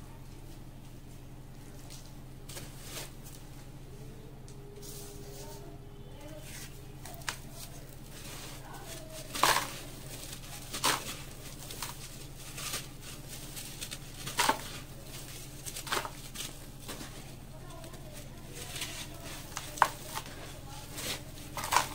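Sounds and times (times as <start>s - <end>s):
faint steady hum: 0.0s - 21.9s
cement block crunching: 7.1s - 21.9s.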